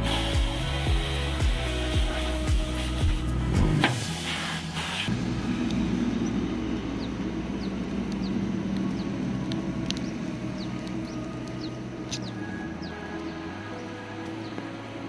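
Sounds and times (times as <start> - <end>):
car engine idling: 5.1 - 15.0.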